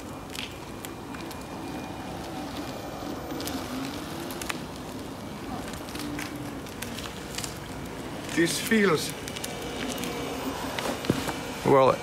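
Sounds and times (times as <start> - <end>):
tyre noise on asphalt: 0.0 - 12.0
electric motor whine: 0.9 - 12.0.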